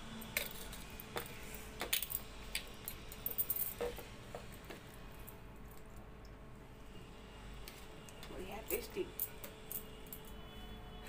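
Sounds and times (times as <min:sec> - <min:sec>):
fingers and bangles clinking on steel: 0:00.0 - 0:06.0, 0:08.6 - 0:10.6.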